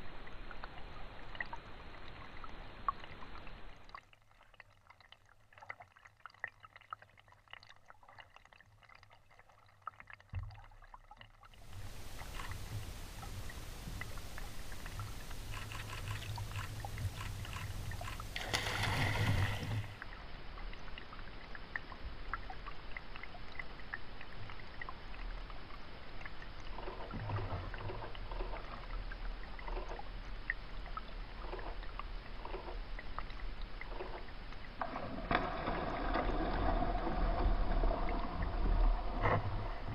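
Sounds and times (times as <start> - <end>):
water sloshing and gurgling: 0.0 - 39.9
small clicks: 15.0 - 18.6.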